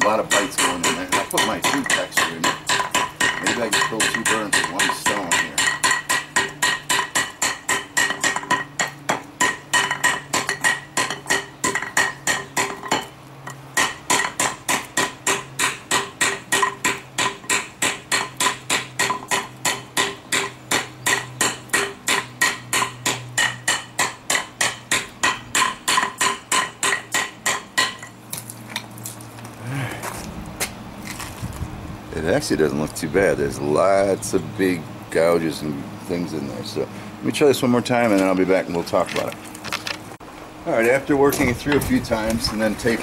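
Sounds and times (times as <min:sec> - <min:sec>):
hammer striking metal pipe: 0:00.0 - 0:13.1, 0:13.8 - 0:28.1.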